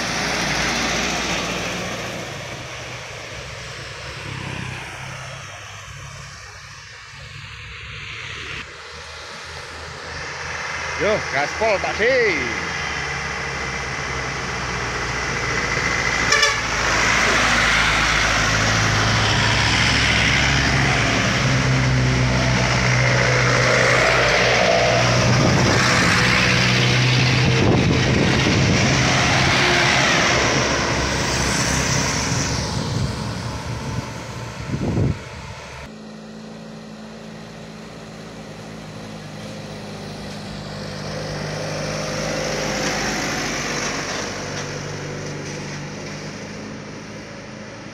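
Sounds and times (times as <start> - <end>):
heavy diesel trucks passing: 0.0 - 47.9
vehicle horn: 16.2 - 16.9.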